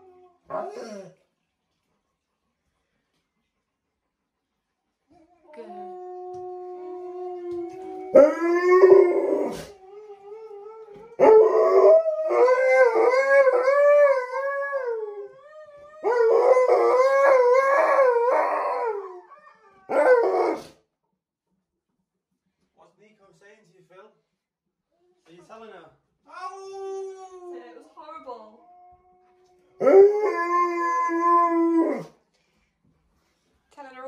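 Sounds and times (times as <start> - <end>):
dog howling: 5.4 - 20.7, 26.4 - 27.7, 28.6 - 32.2.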